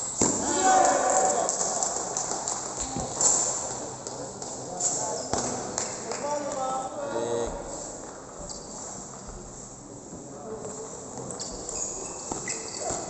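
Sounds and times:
faint chatter in large hall: 0:00.0 - 0:13.0.

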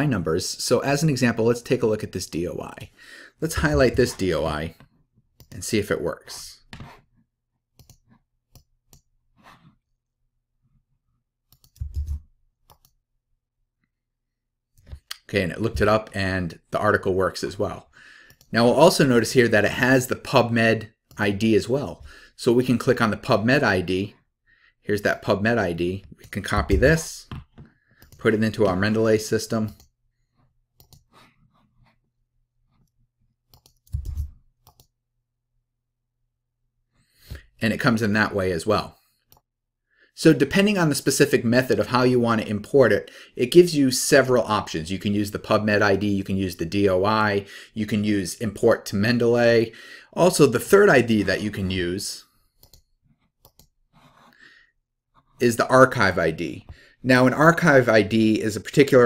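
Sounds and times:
soft breath: 0:03.0 - 0:03.4
mouse and keyboard clicks: 0:11.5 - 0:13.0, 0:33.5 - 0:34.9.

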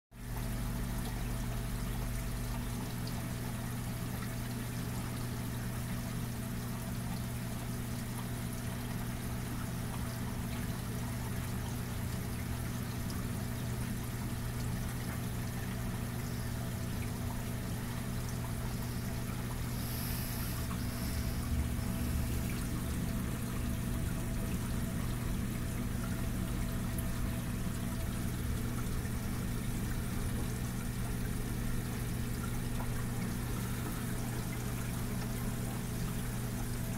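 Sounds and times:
aquarium water trickling and splashing: 0:00.1 - 0:36.9
low hum: 0:18.6 - 0:28.6.

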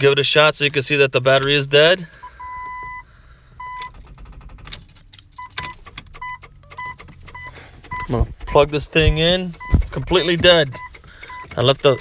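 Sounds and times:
car warning chime beeps: 0:01.6 - 0:04.0, 0:05.4 - 0:12.0
keys jingling: 0:03.8 - 0:12.0.

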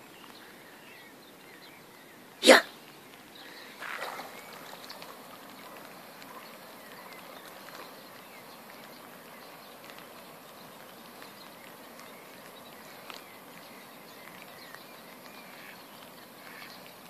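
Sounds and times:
rain pattering on water: 0:00.0 - 0:17.0
water lapping: 0:03.4 - 0:16.9.

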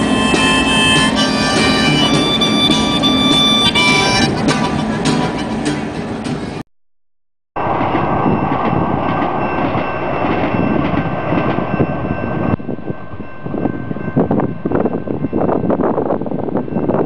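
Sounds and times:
thin high tones: 0:00.0 - 0:05.6
train wheels rushing on rail: 0:00.0 - 0:06.6, 0:07.6 - 0:17.0
wind buffeting microphone: 0:07.6 - 0:17.0.

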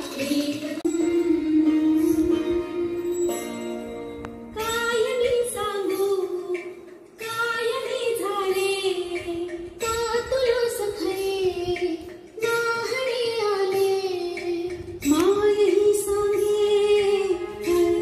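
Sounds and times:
woman singing slow melody: 0:00.1 - 0:03.9.

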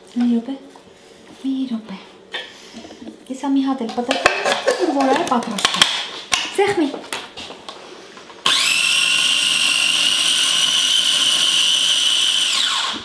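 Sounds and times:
food processor whirring: 0:08.4 - 0:13.0.

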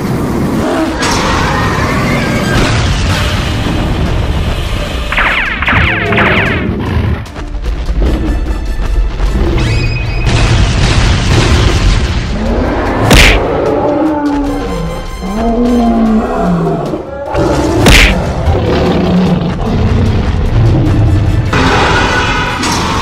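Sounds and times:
dramatic music: 0:00.0 - 0:23.0
growling roars: 0:15.3 - 0:20.3.

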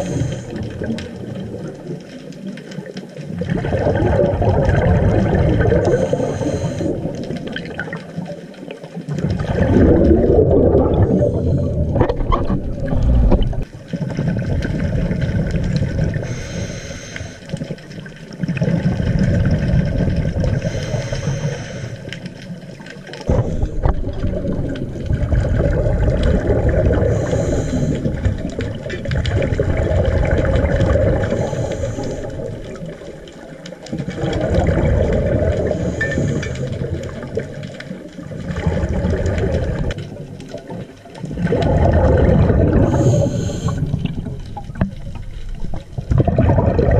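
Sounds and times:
regulator inhale hiss: 0:00.0 - 0:00.6, 0:05.8 - 0:07.0, 0:16.2 - 0:17.6, 0:20.6 - 0:22.3, 0:27.0 - 0:28.3, 0:31.2 - 0:32.6, 0:35.7 - 0:36.9, 0:42.9 - 0:44.1
exhaled bubbles rumbling: 0:00.0 - 0:46.9.

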